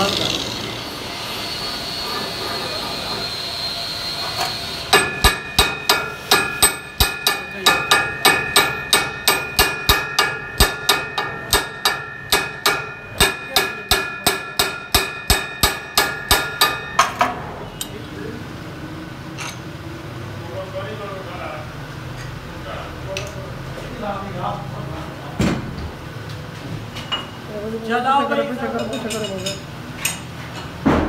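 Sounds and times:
hammer ringing on steel: 4.9 - 17.4.

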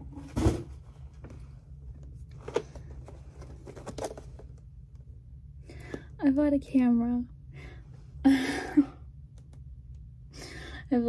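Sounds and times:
low room hum: 0.0 - 11.0
packaging rustling and scraping: 2.2 - 4.6.

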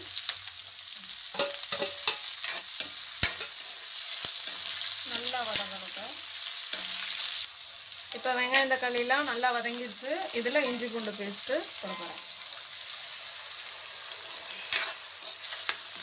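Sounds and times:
vegetables sizzling in hot oil: 0.0 - 16.0
metal spoon scraping a pan: 1.3 - 5.9, 11.8 - 12.4, 14.3 - 16.0.

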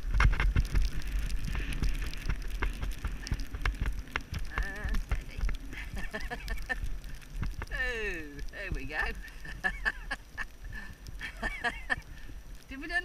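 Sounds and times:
hooves striking snowy track: 0.0 - 7.1
wind rumbling on microphone: 0.0 - 13.0.

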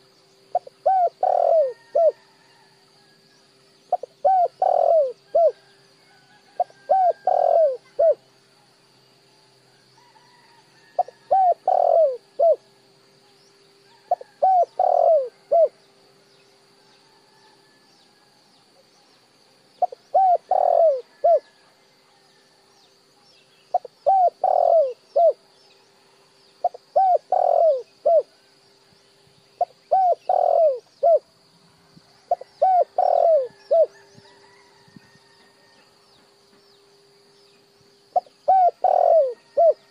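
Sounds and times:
dove cooing: 0.0 - 2.2, 3.9 - 5.7, 6.4 - 8.2, 11.0 - 12.6, 14.1 - 15.8, 19.8 - 21.6, 23.7 - 25.4, 26.6 - 28.4, 29.6 - 31.3, 32.3 - 34.7, 38.1 - 39.9.

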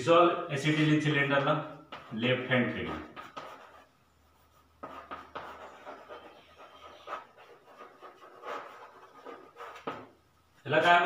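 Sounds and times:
chalk writing on blackboard: 1.8 - 10.2.

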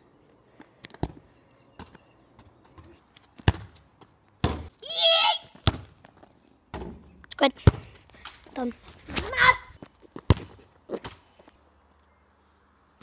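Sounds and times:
football thuds on tarmac: 1.8 - 4.7, 5.6 - 6.0, 10.2 - 11.2
boy shouting: 4.8 - 5.6, 8.6 - 9.8.

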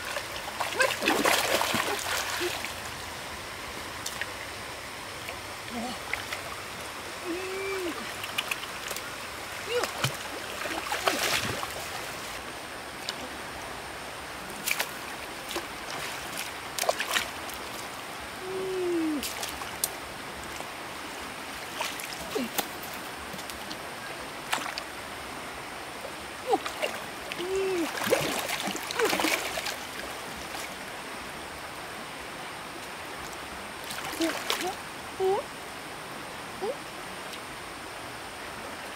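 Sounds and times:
splashes and knocks in water: 0.0 - 2.6, 9.7 - 12.1, 14.6 - 17.8, 27.8 - 29.9
stream water running: 0.0 - 38.9.

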